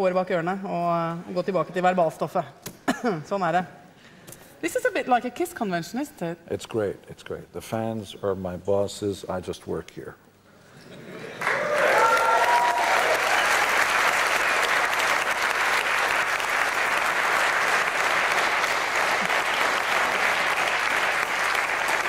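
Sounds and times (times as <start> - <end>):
audience applauding: 11.2 - 22.0.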